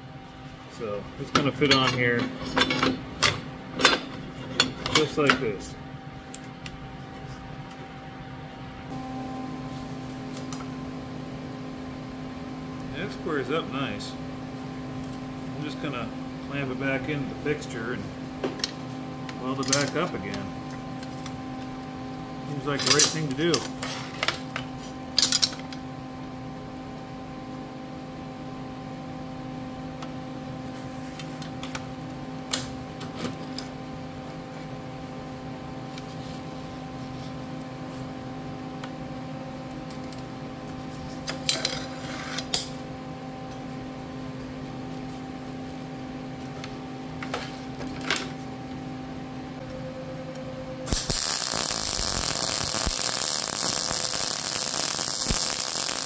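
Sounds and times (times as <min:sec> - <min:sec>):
steady hum: 0:00.0 - 0:56.0
welder arc hissing: 0:50.9 - 0:56.0.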